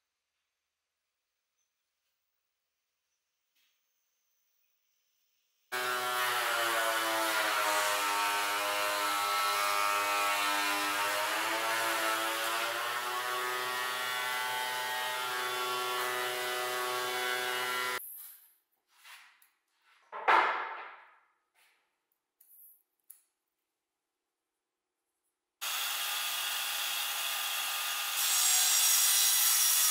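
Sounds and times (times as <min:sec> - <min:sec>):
thickness planer motor whine: 0:25.6 - 0:28.7.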